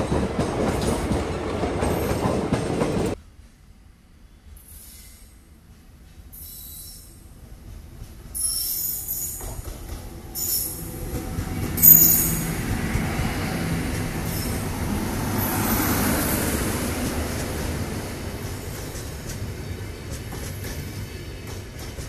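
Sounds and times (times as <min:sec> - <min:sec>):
train passing close: 0:00.0 - 0:22.0
short high-pitched squeals: 0:06.3 - 0:07.2.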